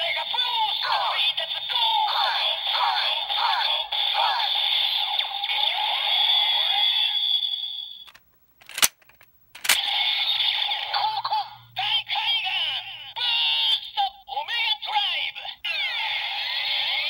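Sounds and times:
toy lever clicks: 0:08.1 - 0:09.9.

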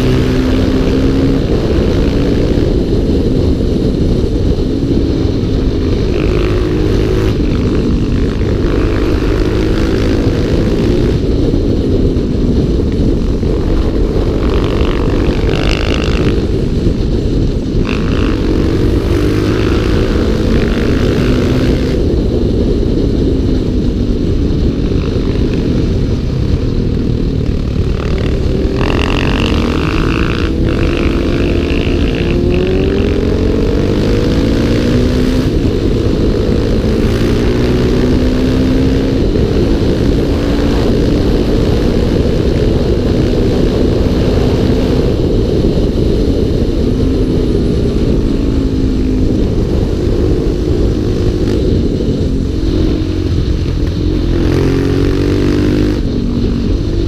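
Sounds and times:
motorcycle engine revving: 0:00.0 - 0:57.0
wind rumble on microphone: 0:00.0 - 0:57.0.

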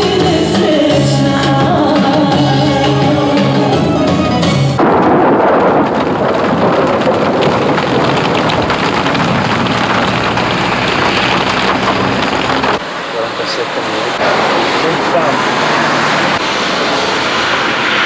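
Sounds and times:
music: 0:00.0 - 0:04.8
heavy rain: 0:01.9 - 0:18.0.

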